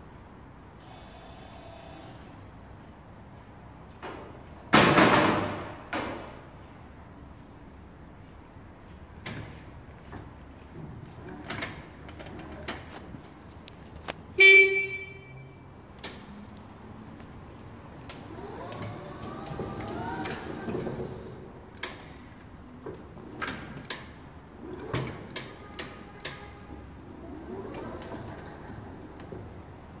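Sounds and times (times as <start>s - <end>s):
machine clicks and knocks: 4.0s - 6.5s, 9.2s - 13.0s, 18.0s - 29.6s
horn beep: 14.4s - 15.7s.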